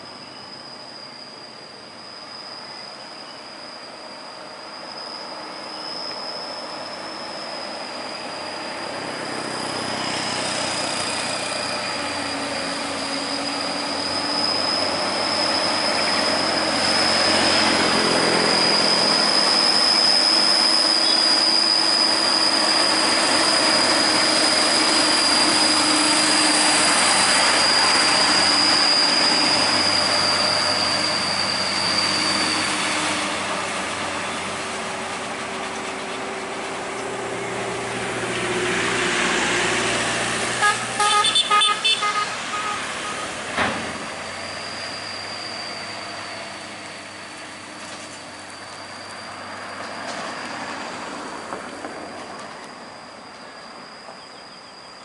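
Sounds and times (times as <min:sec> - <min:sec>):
steady high-pitched whine: 0:00.0 - 0:41.0.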